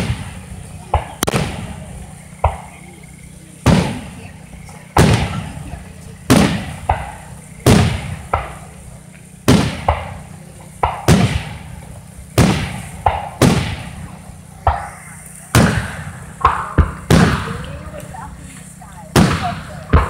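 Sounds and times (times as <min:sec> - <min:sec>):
firework shells bursting: 0:00.0 - 0:20.0.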